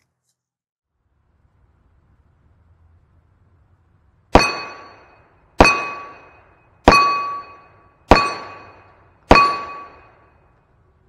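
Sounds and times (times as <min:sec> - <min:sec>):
revolver shots: 0:04.3 - 0:10.1
steel plate target ringing: 0:04.3 - 0:10.6.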